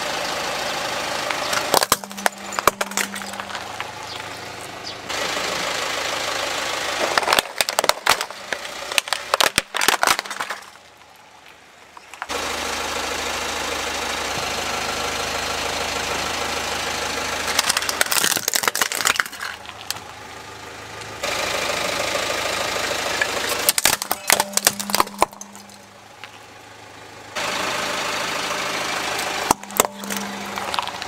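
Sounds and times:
car engine running: 0:00.0 - 0:31.0
plastic toys cracking under tyre: 0:01.5 - 0:04.3, 0:07.0 - 0:12.3, 0:17.5 - 0:20.2, 0:23.2 - 0:25.9, 0:29.4 - 0:31.0.

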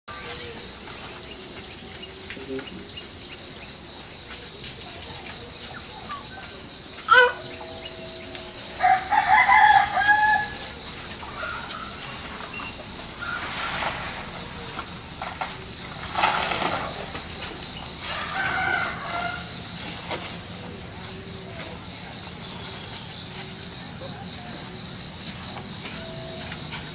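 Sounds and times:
insects chirring: 0:00.1 - 0:26.9
rooster crowing: 0:07.1 - 0:12.3, 0:18.0 - 0:20.0.

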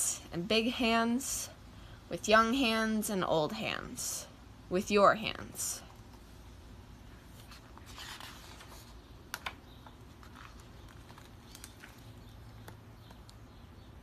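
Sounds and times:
book pages turning: 0:07.2 - 0:13.3.

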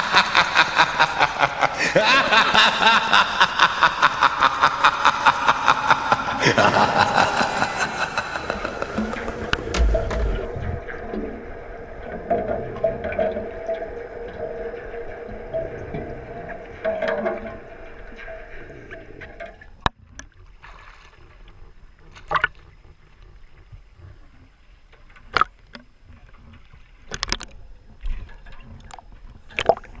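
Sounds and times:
waves splashing: 0:00.0 - 0:11.1
steady hum: 0:00.0 - 0:11.7
water sloshing: 0:05.0 - 0:21.5.

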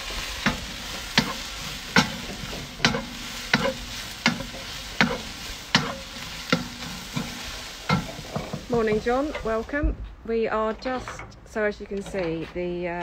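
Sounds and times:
vegetables sizzling in a wok: 0:00.0 - 0:09.8
wooden spatula scraping a pan: 0:00.0 - 0:09.8.

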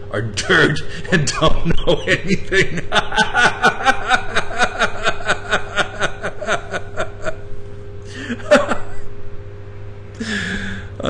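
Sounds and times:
man laughing hard: 0:00.4 - 0:07.4, 0:08.1 - 0:09.1.

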